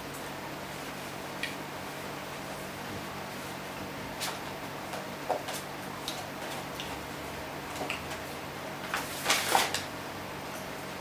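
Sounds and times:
crinkling rustle: 8.8s - 9.9s.

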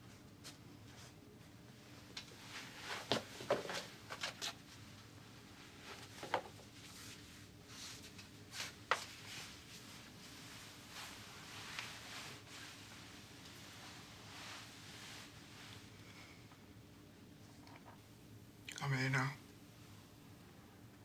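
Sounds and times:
soft rustles: 0.0s - 16.6s.

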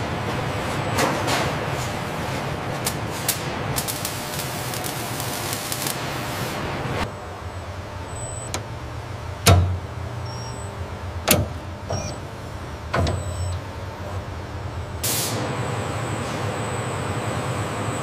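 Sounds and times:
low machine hum: 0.0s - 18.0s
welding hissing crackle: 1.8s - 7.1s.

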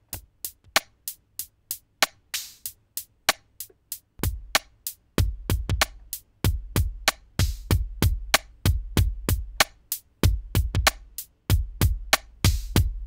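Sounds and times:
deep kick drum: 4.2s - 4.6s, 5.2s - 13.0s.

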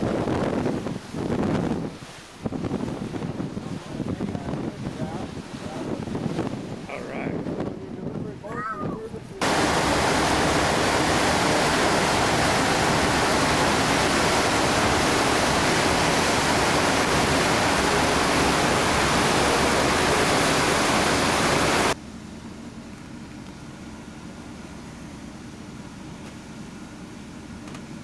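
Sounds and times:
ship wake water rushing: 0.0s - 22.0s.

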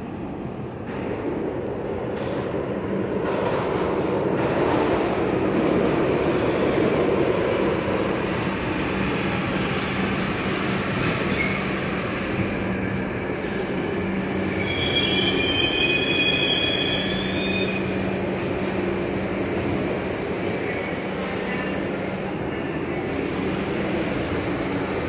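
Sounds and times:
subway train wheel rumble: 0.0s - 25.0s
high wheel squeal: 11.2s - 11.8s, 14.4s - 18.2s.

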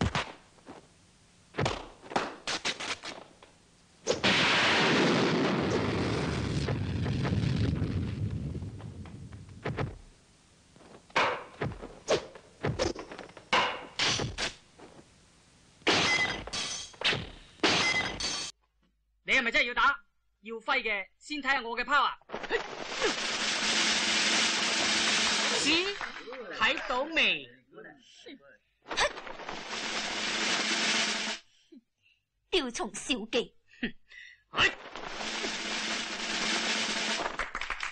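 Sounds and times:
punch and kick impacts: 1.6s - 2.7s, 9.6s - 10.0s, 11.2s - 14.5s
burst of noise: 4.2s - 10.0s, 22.6s - 25.8s, 29.1s - 31.4s.

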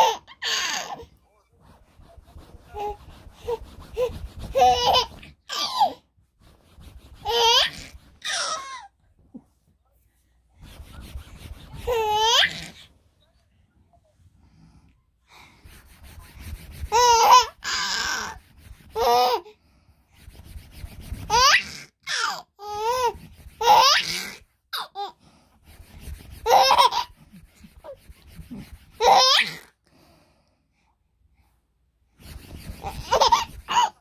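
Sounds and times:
baby laughing and squealing: 0.0s - 1.1s, 2.8s - 6.0s, 7.2s - 8.9s, 11.7s - 12.8s, 16.9s - 18.4s, 21.3s - 25.2s, 26.4s - 28.0s, 29.0s - 29.8s, 32.8s - 34.0s
clothes rubbing: 0.0s - 9.4s, 10.6s - 12.8s, 15.5s - 19.4s, 25.6s - 29.4s, 32.1s - 34.0s.

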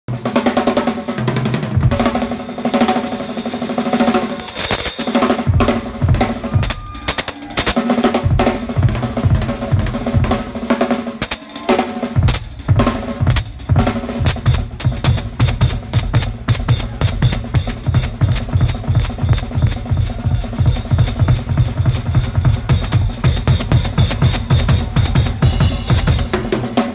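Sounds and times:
snare and tom rolls: 12.2s - 26.9s.

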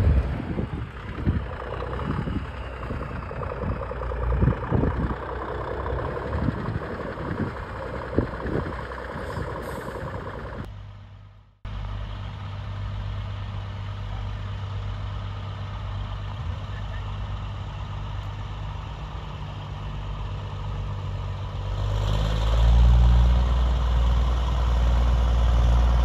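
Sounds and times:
engine knocks and clatter: 0.0s - 10.8s
diesel lorry engine running: 0.0s - 26.0s.

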